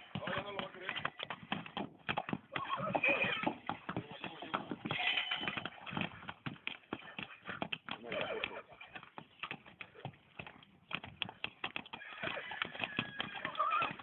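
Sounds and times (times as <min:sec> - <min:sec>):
hooves knocking on stony ground: 0:00.0 - 0:14.0.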